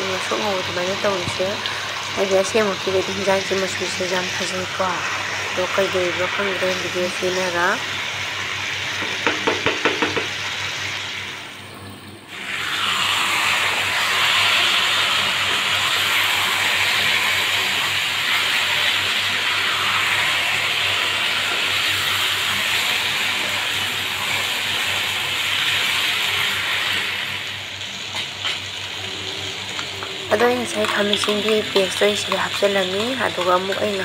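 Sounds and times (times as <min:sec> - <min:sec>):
chicken sizzling in frying pan: 0:00.0 - 0:11.4, 0:12.3 - 0:34.0
spatula knocking pan: 0:09.0 - 0:10.4.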